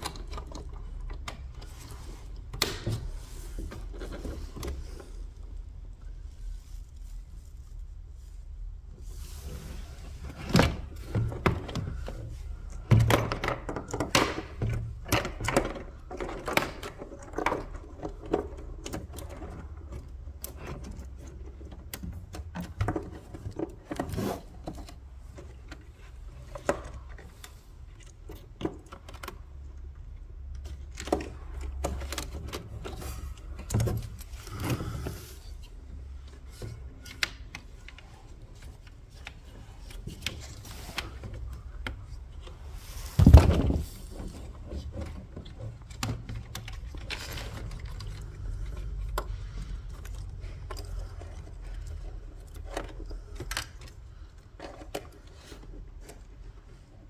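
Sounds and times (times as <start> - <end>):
plastic clicks and knocks: 12.7 - 24.1.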